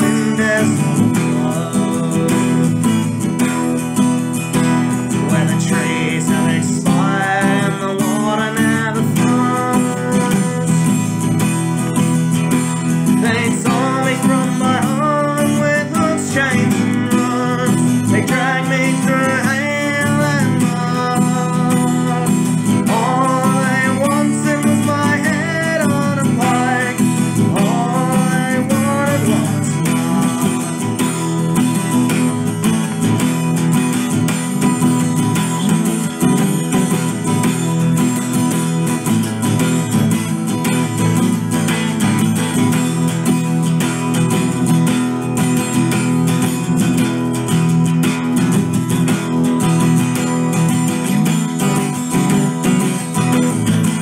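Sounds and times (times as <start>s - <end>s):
man singing: 0.0s - 35.2s
acoustic guitar strumming: 0.0s - 54.0s.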